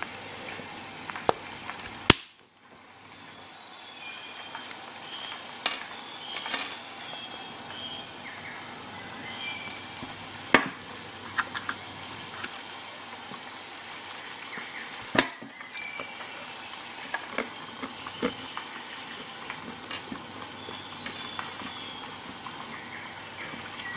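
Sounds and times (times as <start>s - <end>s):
nut shells cracking in pliers: 1.2s - 2.4s, 4.5s - 6.9s, 9.6s - 10.8s, 19.4s - 20.4s
shell pieces clicking on plastic tray: 5.6s - 6.9s, 19.7s - 20.3s.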